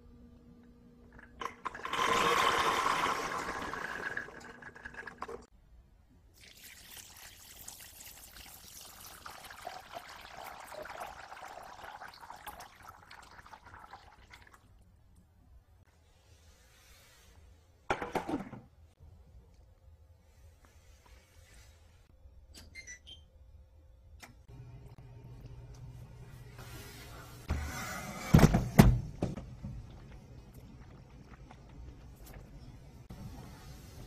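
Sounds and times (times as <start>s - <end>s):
water pouring into a pot: 6.3s - 14.8s.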